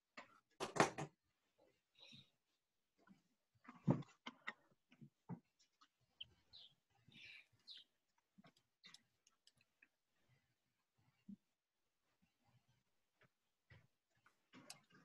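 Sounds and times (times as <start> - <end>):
soft clicks and ticks: 6.6 - 10.0, 13.2 - 15.0.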